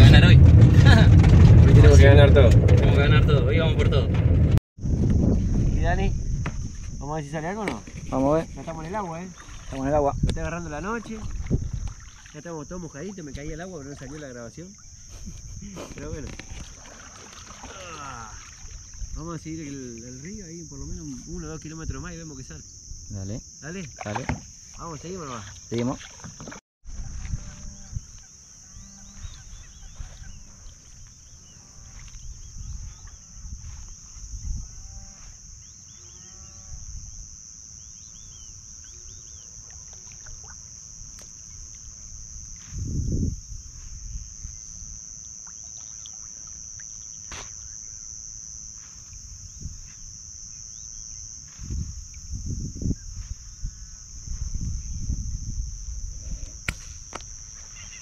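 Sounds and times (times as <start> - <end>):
insect chorus: 4.8 - 58.0
kayak paddling knocks and swishes: 7.6 - 15.0, 16.0 - 19.1, 23.8 - 27.4, 39.6 - 42.6.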